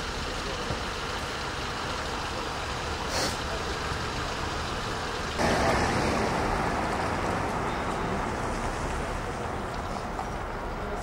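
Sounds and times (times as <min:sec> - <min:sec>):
vehicle passing: 0:03.5 - 0:11.0.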